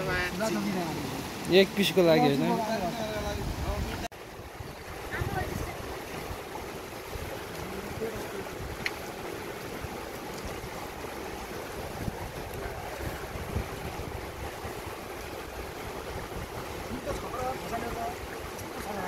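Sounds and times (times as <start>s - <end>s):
stream flowing over rocks: 0.0s - 19.0s.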